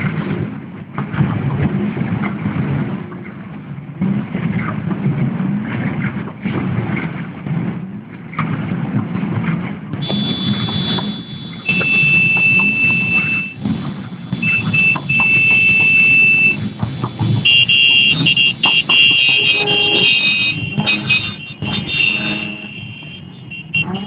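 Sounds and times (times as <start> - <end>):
shrill alarm-like tones: 10.0 - 16.6, 17.4 - 24.0
low rumble: 10.0 - 24.0.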